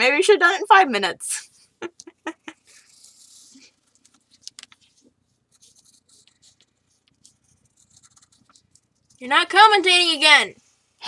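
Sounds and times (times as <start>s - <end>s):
pencil scratching on paper: 2.7s - 4.2s, 4.8s - 9.2s.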